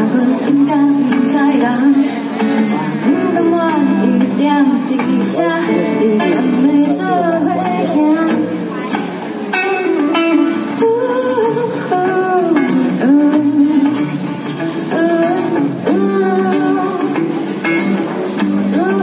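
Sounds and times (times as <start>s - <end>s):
woman singing: 0.0s - 17.9s, 18.5s - 19.0s
electric guitar: 0.0s - 19.0s
strummed acoustic guitar: 0.0s - 19.0s.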